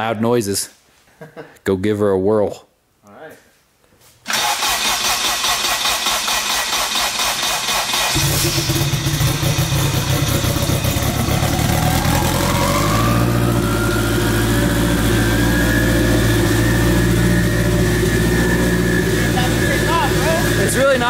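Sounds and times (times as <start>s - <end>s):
car engine idling loud: 8.1s - 21.0s
turbo whine climbing: 8.2s - 21.0s.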